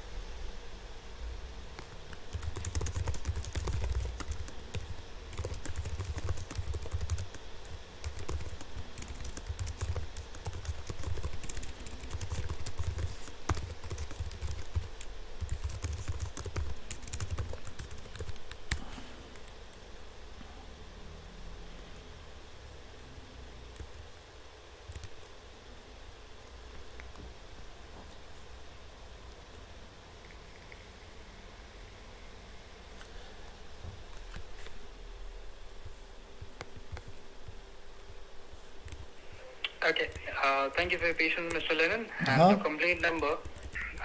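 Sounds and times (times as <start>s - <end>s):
keyboard typing: 1.8s - 19.6s, 24.9s - 25.3s, 42.9s - 44.0s.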